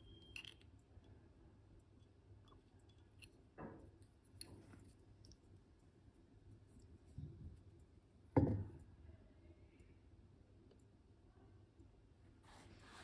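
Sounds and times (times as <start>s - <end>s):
knock on vase: 8.4s - 8.8s.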